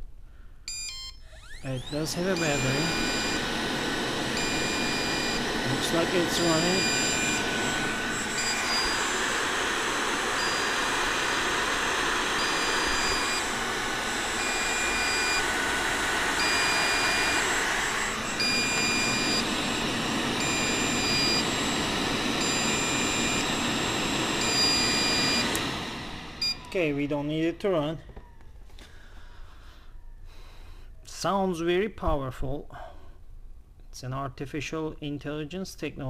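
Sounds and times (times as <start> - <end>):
suction fan whirring: 0.9 - 28.3.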